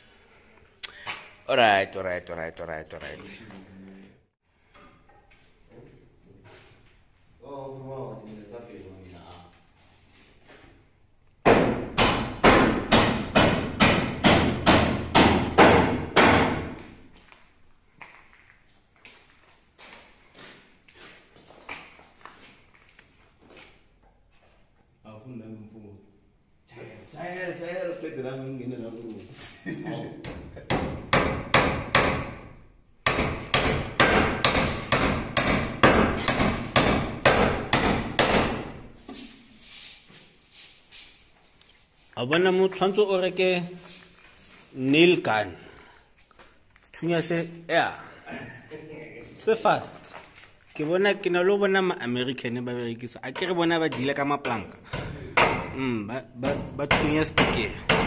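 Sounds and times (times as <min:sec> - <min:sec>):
hammer driving nails into timber: 0:11.4 - 0:16.8, 0:30.7 - 0:38.8, 0:54.9 - 0:55.8, 0:56.4 - 0:58.0.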